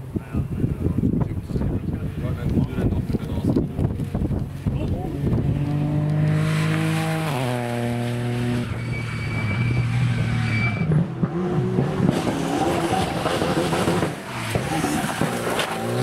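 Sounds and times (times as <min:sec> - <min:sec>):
rally car engine: 0:00.1 - 0:16.0
rally car engine racing past: 0:04.5 - 0:16.0.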